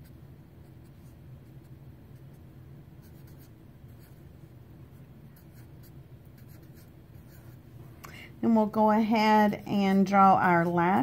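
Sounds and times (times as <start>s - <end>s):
low steady hum: 0.0s - 11.0s
pen writing on paper: 3.0s - 4.2s, 5.4s - 7.6s.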